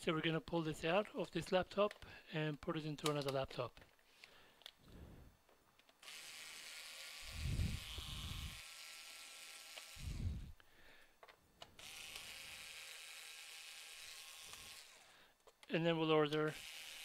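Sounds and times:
electric screwdriver motor running: 6.0s - 10.6s, 11.8s - 15.2s, 16.5s - 17.0s.

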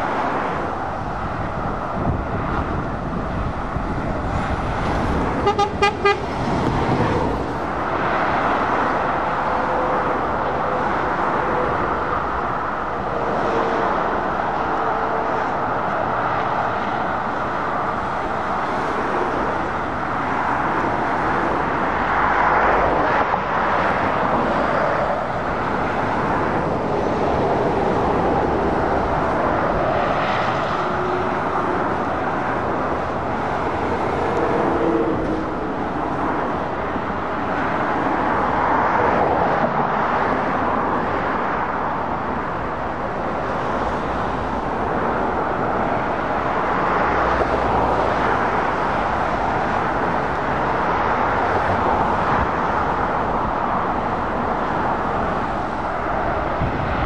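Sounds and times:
traffic passing: 0.0s - 57.0s
vehicle horn short toots: 5.4s - 6.2s.

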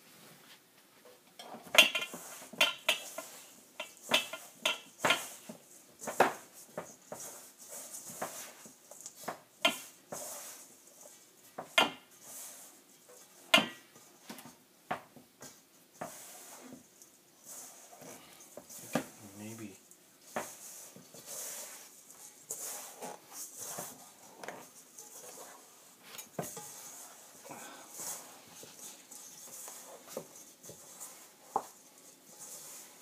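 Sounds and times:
mixing bowl knocks and clatters: 1.3s - 12.2s, 20.2s - 33.0s.

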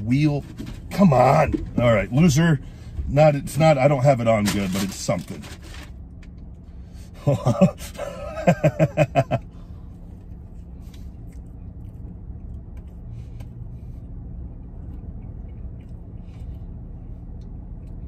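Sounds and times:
man laughing: 7.2s - 9.6s
faint chewing clicks: 14.5s - 18.0s.

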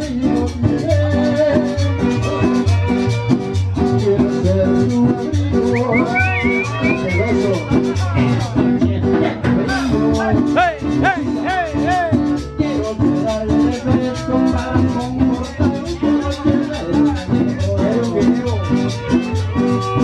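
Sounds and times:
latin dance band playing: 0.0s - 20.0s
short sliding high notes: 5.8s - 7.8s.

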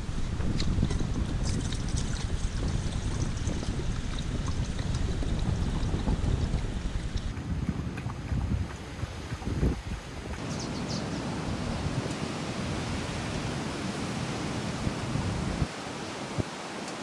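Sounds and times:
wind on microphone: 0.0s - 17.0s
ocean surf on rocks: 8.8s - 17.0s.

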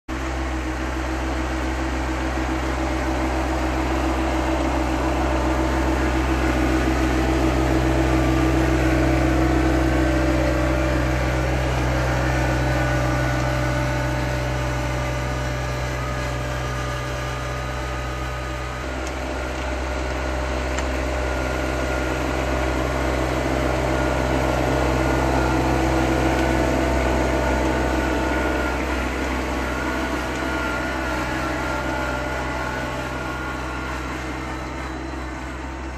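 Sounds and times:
tractor diesel engine under load: 0.1s - 35.9s.

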